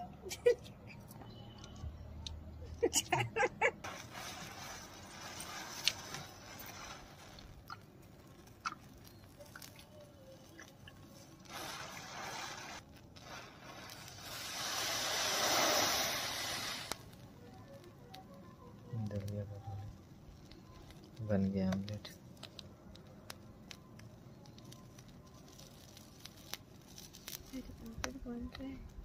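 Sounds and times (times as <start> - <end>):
matches catching fire crackling: 0.3 - 29.0.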